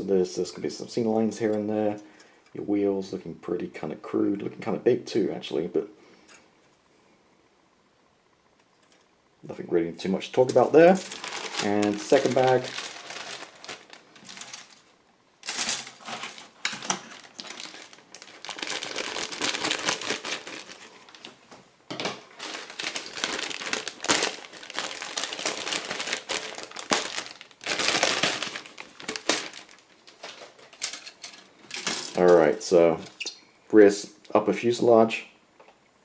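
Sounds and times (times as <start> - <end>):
plastic bag crinkling: 10.4 - 32.8.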